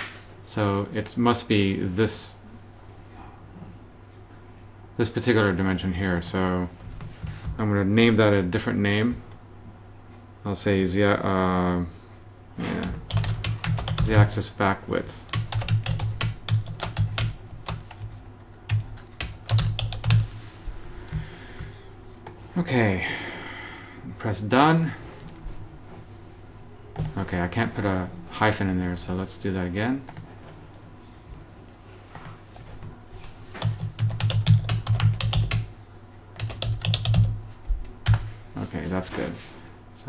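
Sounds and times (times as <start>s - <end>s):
computer keyboard typing: 12.8s - 14.3s, 15.2s - 20.3s, 26.9s - 27.2s, 30.1s - 30.3s, 32.1s - 32.7s, 33.6s - 35.7s, 36.4s - 38.3s
keyboard typing clicks: 26.9s - 27.2s, 30.1s - 30.3s, 32.1s - 32.7s.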